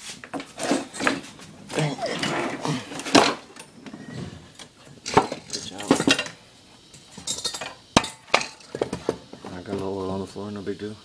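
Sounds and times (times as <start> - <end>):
metal clinks and knocks: 0.3 - 3.8, 4.6 - 9.3.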